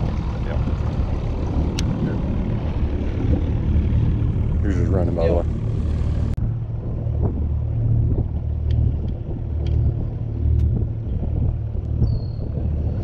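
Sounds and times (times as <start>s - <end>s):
boat motor rumbling: 0.0s - 13.0s.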